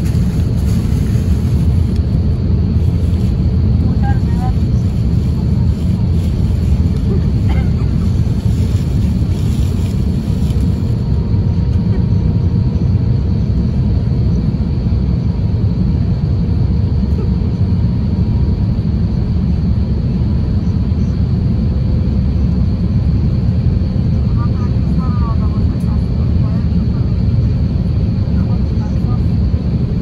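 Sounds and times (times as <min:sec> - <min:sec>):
airliner cabin rumble: 0:00.0 - 0:30.0
faint steady whines: 0:00.0 - 0:30.0.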